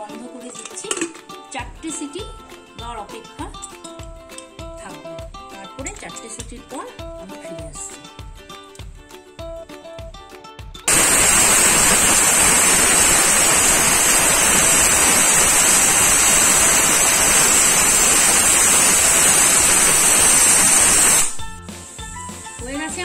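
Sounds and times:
background music: 0.0s - 10.9s, 21.2s - 23.0s
pressure cooker steam hiss: 10.9s - 22.6s.

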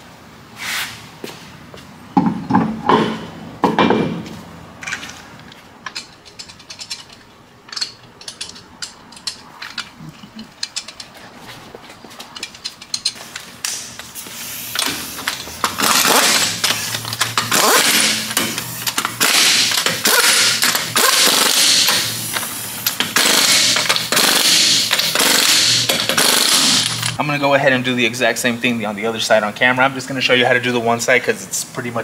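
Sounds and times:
pneumatic impact wrench rattling: 4.8s - 11.3s, 12.2s - 27.2s.

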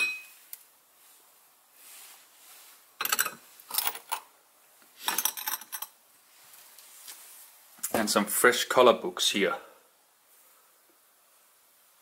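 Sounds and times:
porcelain dishes clinking: 0.0s - 0.3s.

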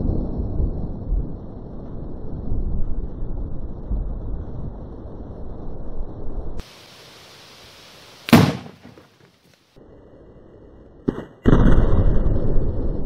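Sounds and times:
plastic keg bursting bang: 8.3s - 9.0s
small pop: 8.3s - 9.1s.

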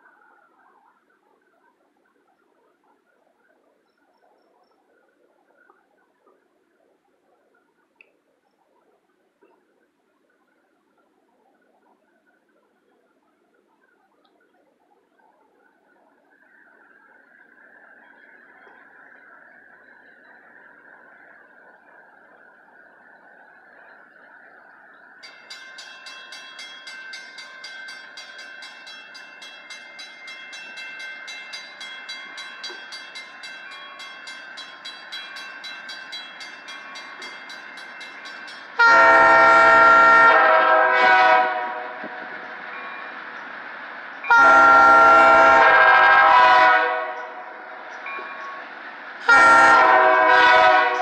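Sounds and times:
crossing signal bell ringing: 25.2s - 41.4s, 42.0s - 43.5s, 44.2s - 45.8s, 46.4s - 51.0s
locomotive air horn blasts: 38.8s - 42.1s, 44.3s - 47.6s, 49.2s - 51.0s.

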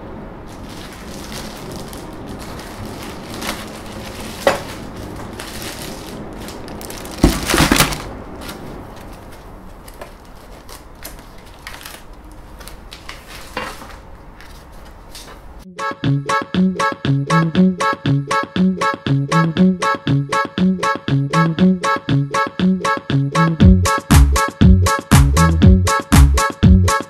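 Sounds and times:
packaging rustling: 0.4s - 15.6s.

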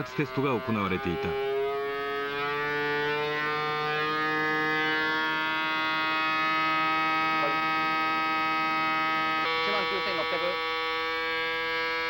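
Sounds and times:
racing engine high-pitched whine: 0.0s - 12.0s.

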